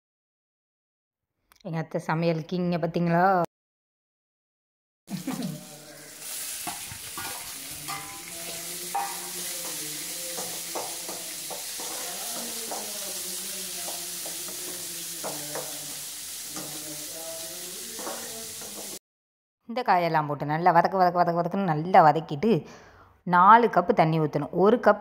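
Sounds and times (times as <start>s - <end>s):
vegetables sizzling in a pan: 5.1s - 19.0s
spatula scraping and tapping pan: 6.2s - 17.2s, 17.8s - 19.0s.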